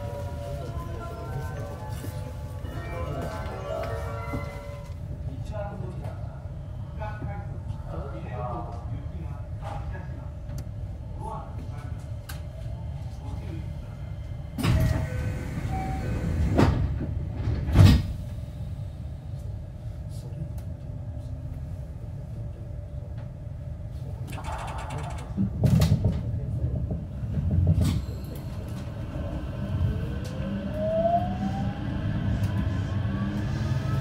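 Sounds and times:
train running rumble: 8.4 - 34.0.

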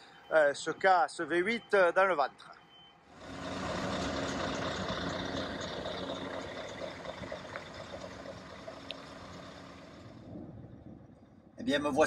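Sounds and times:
road noise: 0.0 - 11.3
diesel truck driving past: 3.1 - 11.1.

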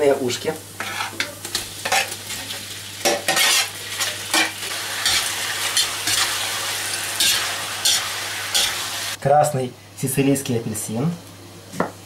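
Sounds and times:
food sizzling in oil: 0.0 - 9.2
metal spatula scraping wok: 0.8 - 9.2.

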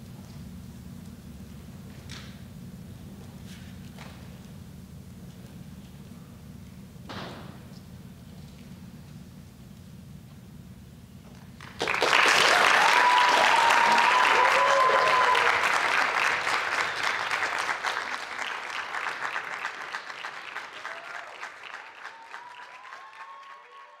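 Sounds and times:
audience applause: 11.6 - 24.0
people cheering: 11.8 - 24.0.

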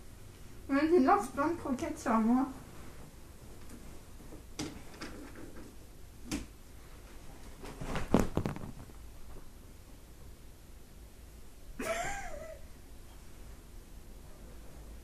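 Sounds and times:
dry kibble pattering on couch: 7.0 - 9.5.

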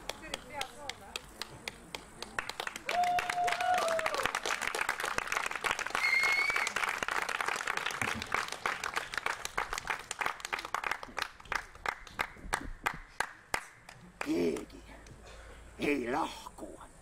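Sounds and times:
audience applauding: 2.2 - 13.7.

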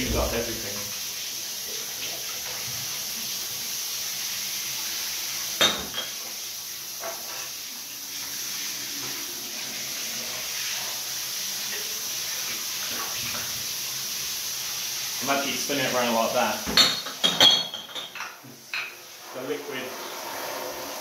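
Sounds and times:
shower water spraying into bathtub: 0.0 - 21.0
glass bottles clinking: 5.6 - 6.2, 16.7 - 18.9.

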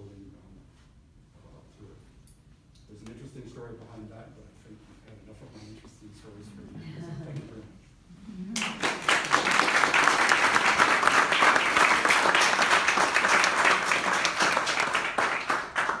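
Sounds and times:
audience applauding: 8.5 - 16.0.

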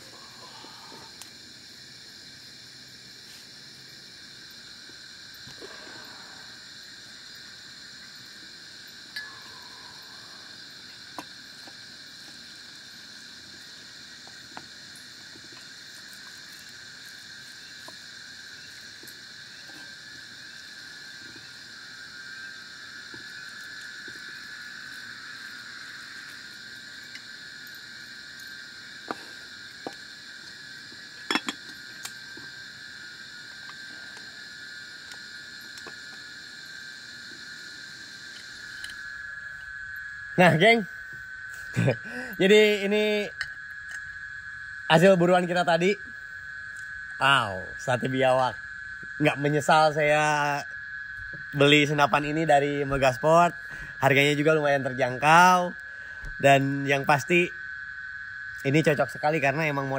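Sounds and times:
night insects chirping: 0.0 - 59.9.

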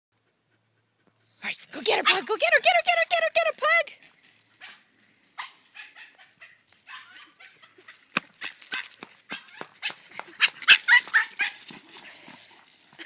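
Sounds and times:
dogs barking: 5.4 - 8.0, 8.7 - 11.7.

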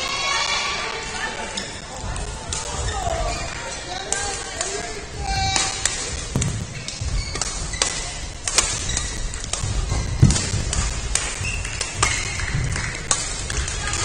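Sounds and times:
rackets striking shuttlecocks: 2.1 - 14.0
shoes squeaking on court floor: 2.6 - 3.9, 5.2 - 13.4.

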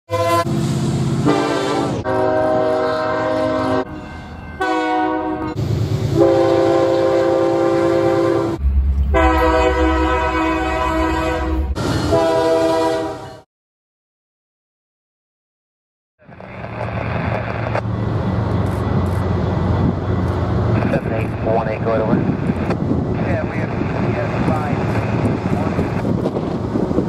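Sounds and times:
locomotive air horn blasts: 0.1 - 0.6, 1.2 - 13.4
passing trains rumbling: 0.1 - 13.4, 16.2 - 27.0.

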